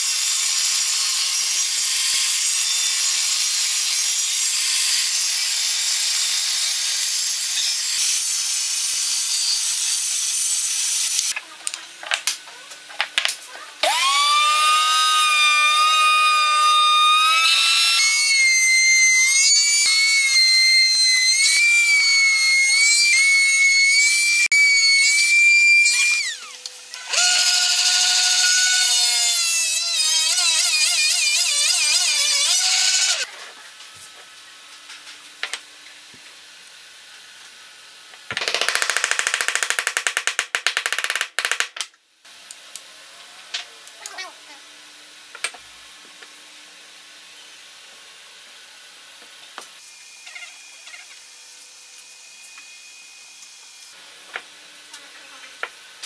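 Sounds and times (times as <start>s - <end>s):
router whining and cutting wood: 13.8s - 33.3s.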